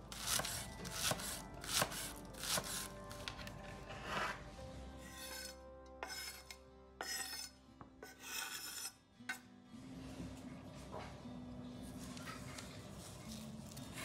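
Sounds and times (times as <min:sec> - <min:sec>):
faint background music: 0:00.0 - 0:14.0
rasping scraping strokes: 0:03.8 - 0:09.0.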